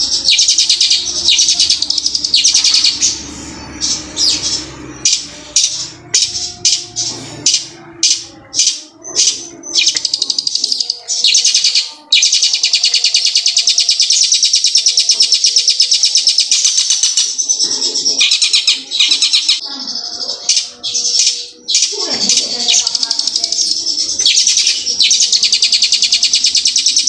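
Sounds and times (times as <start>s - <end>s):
bird singing rolling trills: 0.0s - 27.0s.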